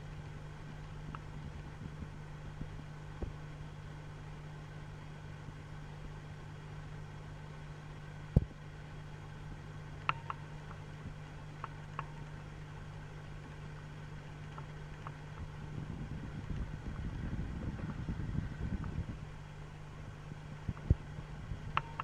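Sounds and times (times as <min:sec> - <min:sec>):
low mechanical hum: 0:00.0 - 0:22.0
faint ticks: 0:10.0 - 0:12.4, 0:21.7 - 0:22.0.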